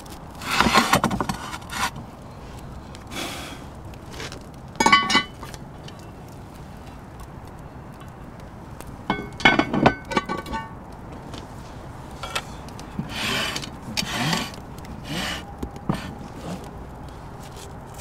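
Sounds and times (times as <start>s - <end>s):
pot scraping on stone floor: 0.4s - 2.0s, 4.1s - 5.5s, 12.2s - 16.7s
metal clinks ringing: 4.8s - 5.4s.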